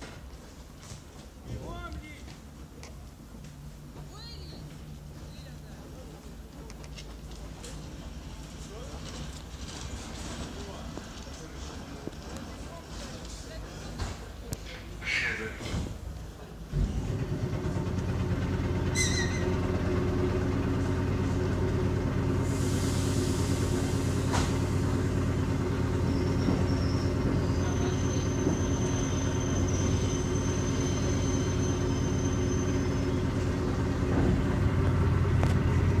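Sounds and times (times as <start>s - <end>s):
electric train humming: 16.8s - 36.0s.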